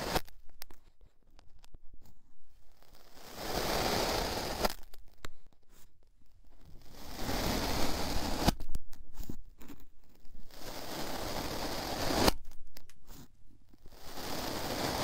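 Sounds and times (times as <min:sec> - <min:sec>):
tube crunching into sand: 0:03.0 - 0:04.8, 0:10.5 - 0:12.5, 0:13.9 - 0:15.0.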